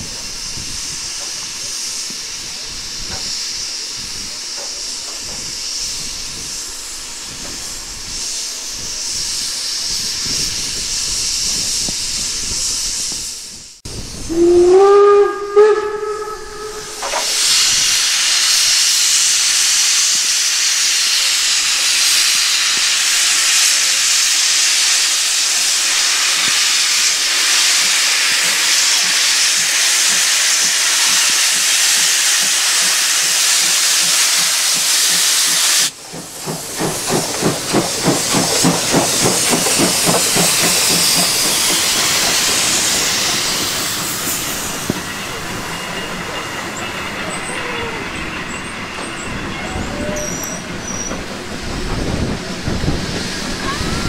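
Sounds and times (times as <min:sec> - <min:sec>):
steam hissing: 0:00.0 - 0:54.0
steam whistle blasts: 0:14.2 - 0:18.4.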